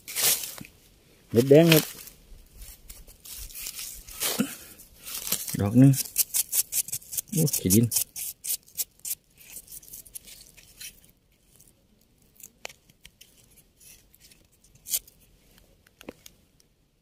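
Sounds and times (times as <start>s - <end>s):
fingers rubbing mushroom stem: 2.6s - 4.3s, 5.0s - 16.2s.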